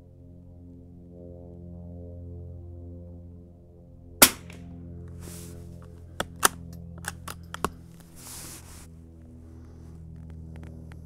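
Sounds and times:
rifle bolt clicking: 4.2 - 4.6
rifle shot: 4.2 - 4.7.

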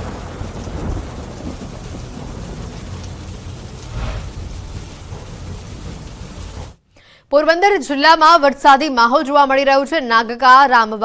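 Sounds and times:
heavy rain: 0.0 - 6.8
low rolling thunder: 0.0 - 6.8.

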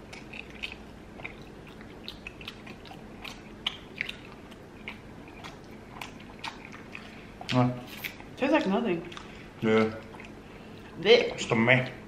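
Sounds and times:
mouth smacks and clicks: 0.0 - 8.3
people chewing food: 0.0 - 12.0.

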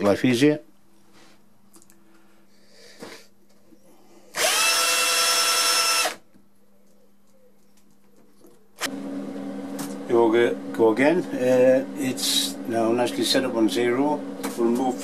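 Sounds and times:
cordless drill whining: 4.3 - 6.2.

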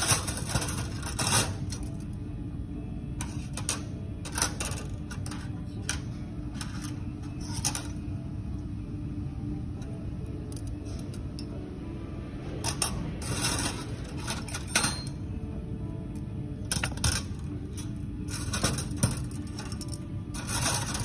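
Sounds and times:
low hum: 0.0 - 21.0
metal instruments clinking: 12.6 - 15.2, 16.7 - 21.0.

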